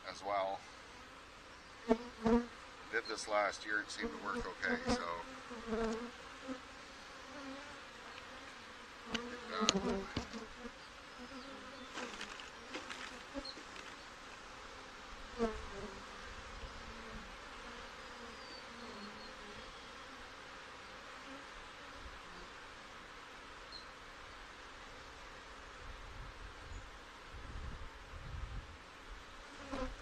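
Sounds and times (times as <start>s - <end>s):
honey bees humming: 0.0s - 22.9s.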